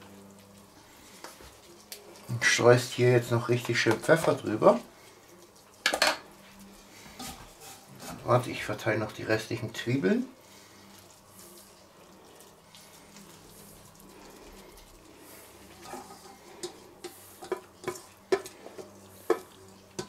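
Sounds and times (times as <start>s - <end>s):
metal bowl scraping and knocking: 15.7s - 20.0s.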